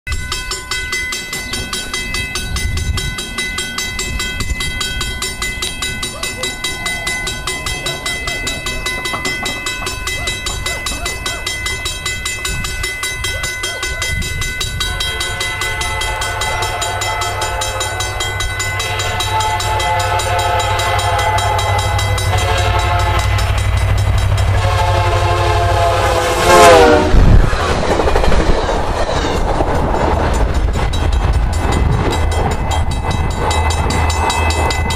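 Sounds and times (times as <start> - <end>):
high pulsing ringing tone: 0.1 - 27.6, 28.3 - 34.9
diesel locomotive engine rumbling: 0.1 - 34.9
passing coaches clattering: 0.8 - 34.9
train air horn blasts: 15.0 - 23.6, 24.4 - 27.5.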